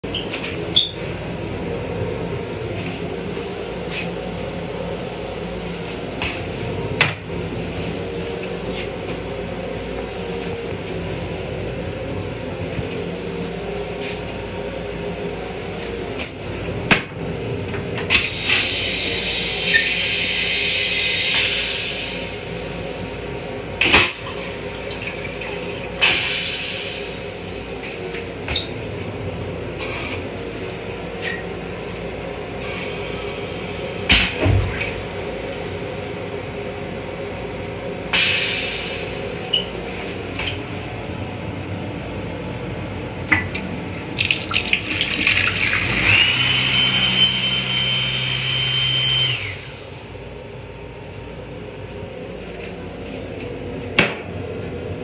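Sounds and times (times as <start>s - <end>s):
rail car hum: 0.0s - 55.0s
toilet flushing: 18.0s - 27.8s, 44.0s - 50.1s.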